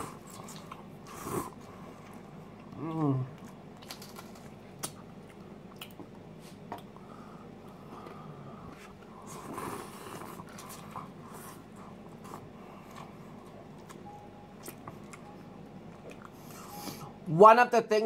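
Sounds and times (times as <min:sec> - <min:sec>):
person chewing and slurping noodles: 0:00.0 - 0:07.0, 0:07.8 - 0:17.1.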